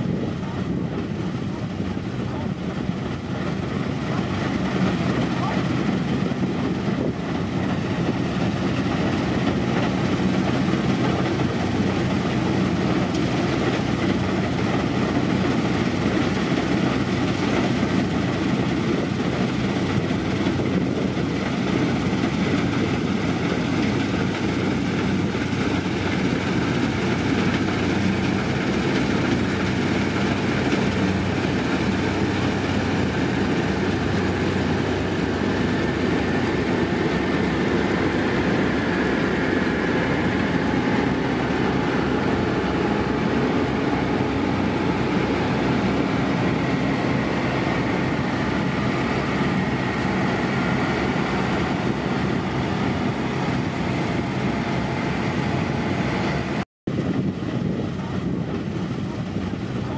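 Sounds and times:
combine harvester running: 0.0 - 59.9.

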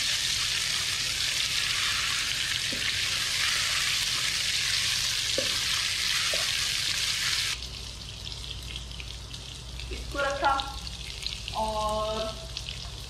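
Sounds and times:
chicken sizzling in hot oil: 0.0 - 7.6.

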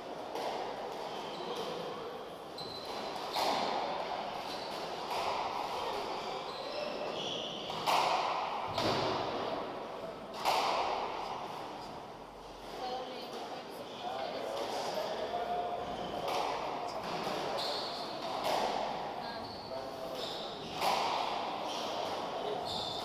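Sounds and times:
shoes squeaking on wooden floor: 2.6 - 3.7, 6.2 - 8.0
squash ball hitting wall: 7.6 - 9.6, 10.3 - 11.2.

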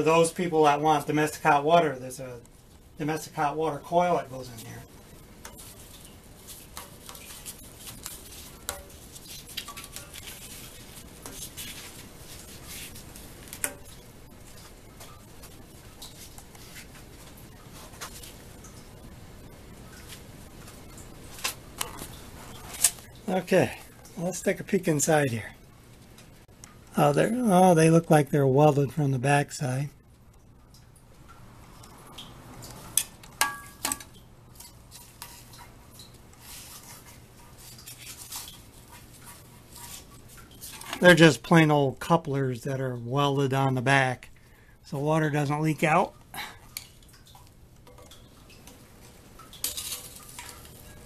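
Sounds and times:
metal parts scraping and clinking: 49.6 - 51.0.

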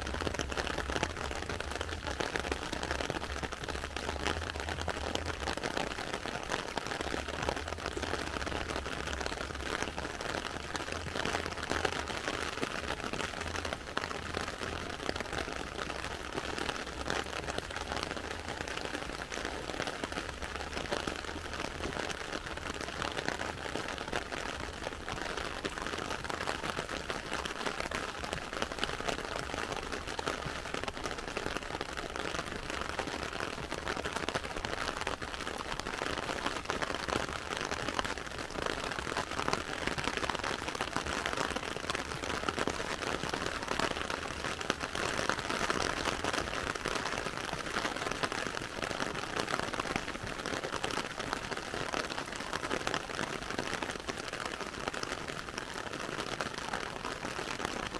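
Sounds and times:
heavy rain on tarmac: 0.0 - 57.9.

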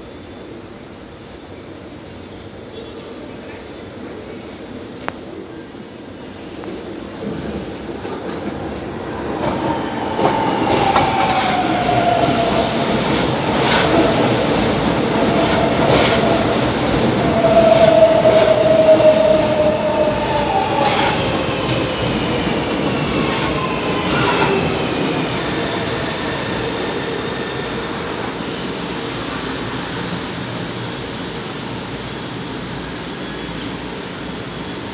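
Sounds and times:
train high whine: 0.0 - 34.9
train rumbling: 4.7 - 34.9.

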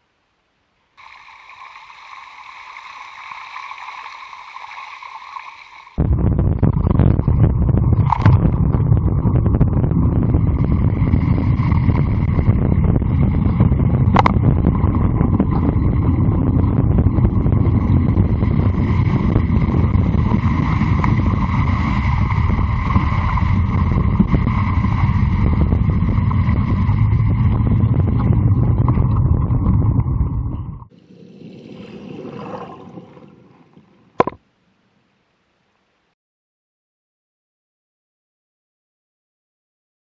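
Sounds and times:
bike tyres through water: 1.0 - 6.0, 10.2 - 34.2
wind rumble on microphone: 6.0 - 30.9.

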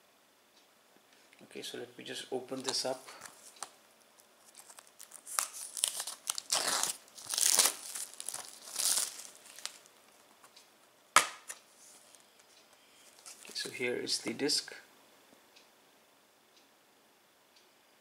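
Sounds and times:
plastic shrink-wrap crinkling and tearing: 2.6 - 9.9.

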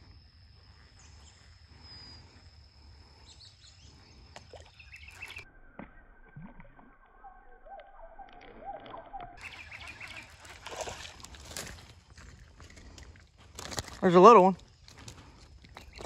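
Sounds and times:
bird chirp: 3.0 - 11.0.

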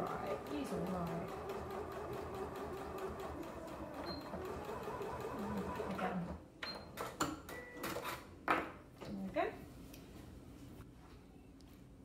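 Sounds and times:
sewing machine stitching: 0.0 - 6.4.

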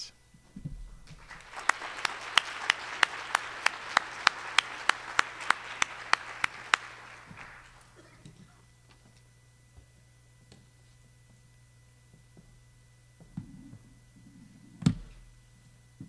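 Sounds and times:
audience applauding: 1.0 - 8.3
hands clapping close to microphone: 1.1 - 8.0.

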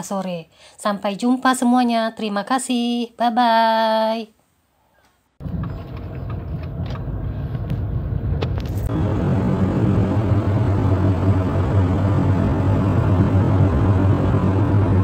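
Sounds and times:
car cabin road noise: 5.4 - 15.0
low street rumble: 5.4 - 15.0.

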